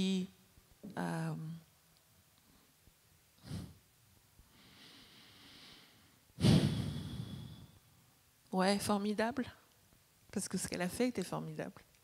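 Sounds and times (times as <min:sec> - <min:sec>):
woman breathing into microphone: 0:04.5 - 0:07.8.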